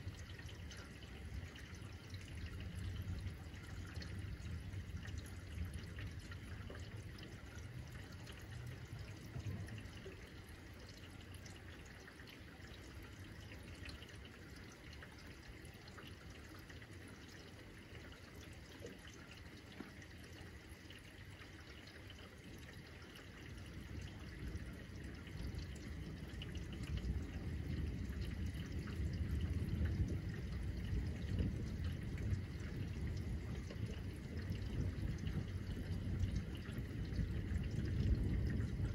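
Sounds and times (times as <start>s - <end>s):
steady rain: 0.0s - 38.9s
thunder rumbling: 24.4s - 38.9s.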